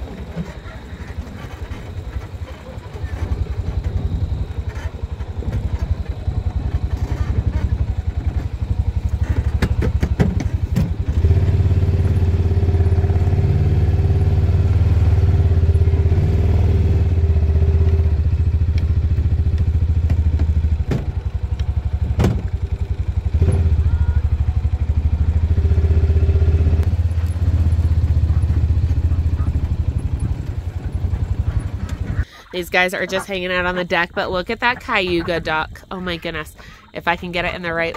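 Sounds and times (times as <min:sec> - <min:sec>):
knocks and clatter from bumps: 0:00.0 - 0:12.2, 0:17.8 - 0:23.8
utility vehicle engine running: 0:00.0 - 0:37.9.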